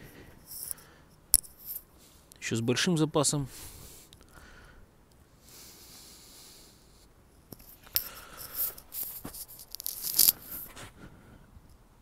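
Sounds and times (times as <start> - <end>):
handling noise rustling and scraping: 0.0 - 2.0, 7.3 - 11.0.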